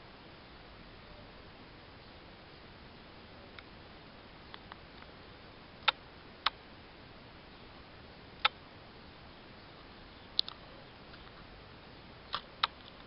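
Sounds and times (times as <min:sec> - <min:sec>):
plastic clicks: 0:10.4 - 0:11.2.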